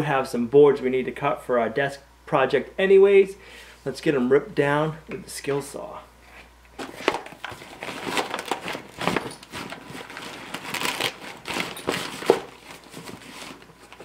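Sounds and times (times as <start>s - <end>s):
fabric bag rustling and crinkling: 6.8s - 14.0s.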